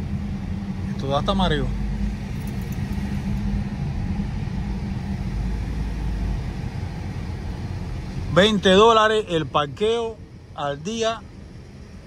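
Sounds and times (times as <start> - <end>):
car engine and tyre rumble: 0.0 - 12.0.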